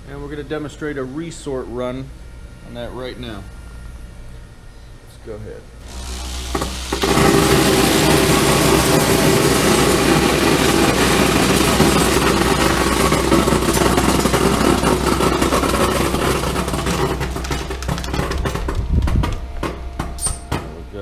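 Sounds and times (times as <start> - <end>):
machine low hum: 0.0 - 21.0
air ejectors firing: 5.9 - 12.8
kernels rattling down chutes: 5.9 - 20.3.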